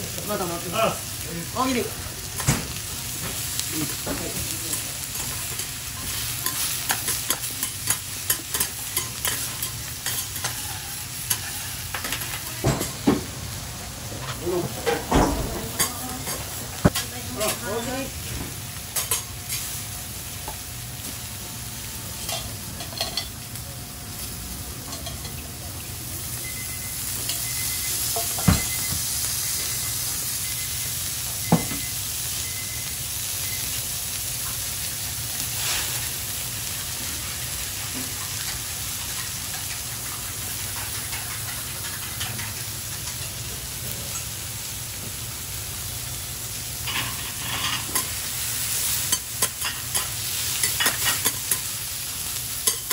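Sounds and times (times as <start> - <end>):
seafood sizzling on a griddle: 0.0 - 52.9.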